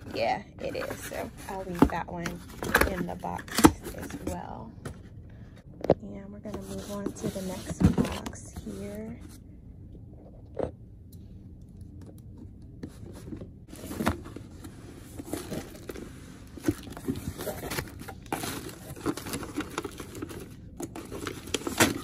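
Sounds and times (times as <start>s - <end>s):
packing material tearing and crinkling: 15.2s - 22.0s.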